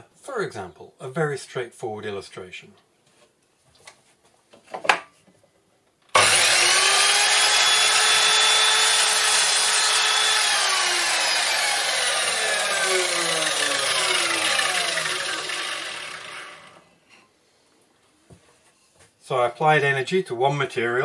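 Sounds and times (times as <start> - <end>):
mitre saw cutting wood: 6.2 - 16.9
saw blade winding down: 6.2 - 16.9.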